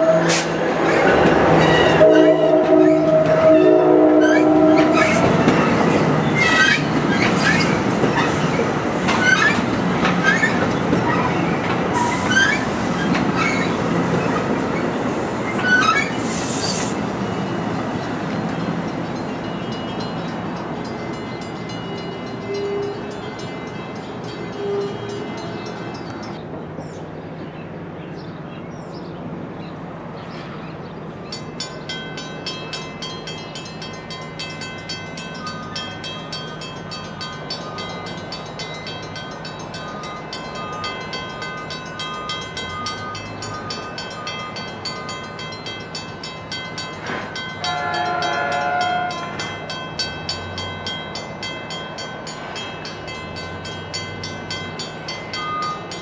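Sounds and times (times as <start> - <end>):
train horn blast: 0.0 - 0.6, 1.8 - 5.7, 47.6 - 49.4
crossing warning bells ringing: 0.0 - 16.3, 16.9 - 26.5, 30.4 - 56.0
train rumbling: 0.0 - 56.0.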